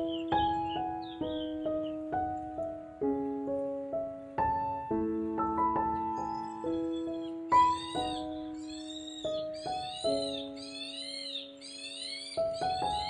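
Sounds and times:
high chirping calls: 0:00.0 - 0:02.1, 0:05.9 - 0:13.0
gentle solo piano: 0:00.0 - 0:13.0.

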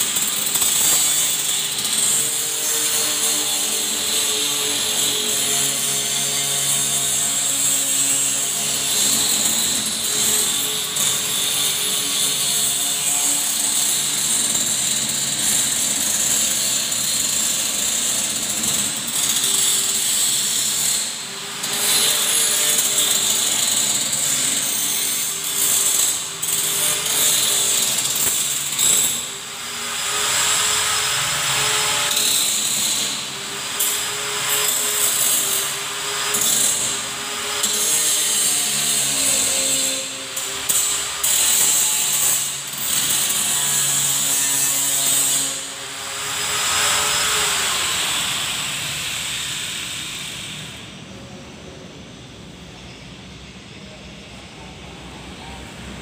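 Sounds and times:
electric drill running under load: 0:00.0 - 0:44.3.

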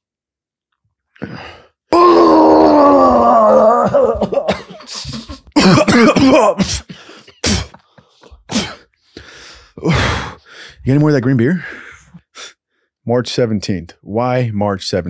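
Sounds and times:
man retching and gagging: 0:01.1 - 0:08.9, 0:09.8 - 0:10.4
man groaning: 0:01.2 - 0:06.9, 0:09.8 - 0:10.4
man coughing: 0:04.1 - 0:07.9, 0:08.5 - 0:08.9.

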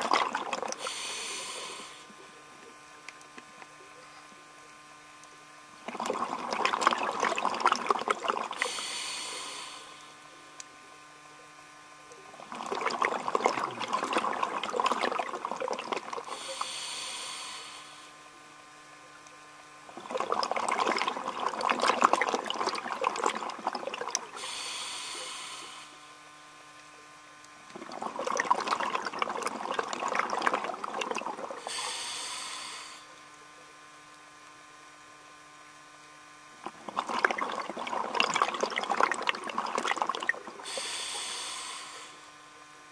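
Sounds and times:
diver breathing through regulator: 0:00.7 - 0:02.2, 0:08.5 - 0:10.2, 0:16.2 - 0:18.2, 0:24.3 - 0:26.2, 0:31.5 - 0:33.2, 0:40.5 - 0:42.4.

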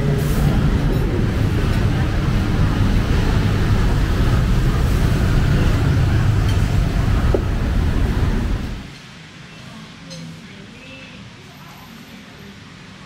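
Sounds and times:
loud low rumbling: 0:00.0 - 0:08.9.

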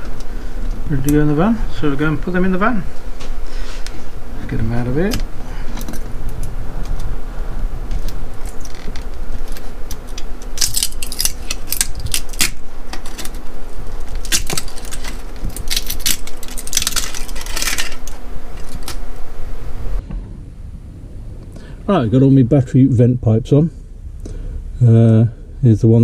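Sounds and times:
plastic parts clicking and clattering: 0:14.0 - 0:19.0.

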